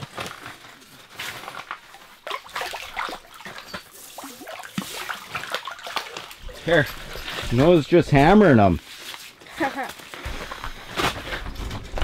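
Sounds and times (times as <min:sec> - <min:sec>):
fish splashing in water: 0:02.1 - 0:06.6.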